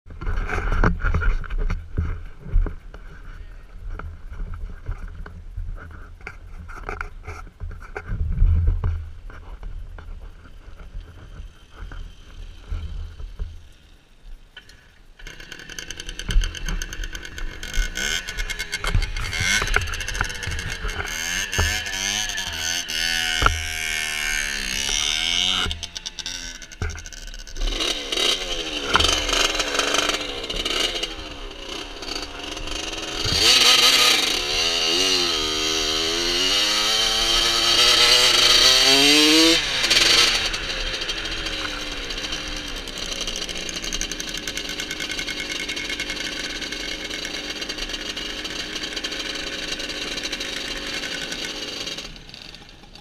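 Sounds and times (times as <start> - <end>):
moped engine revving: 14.5 - 53.0.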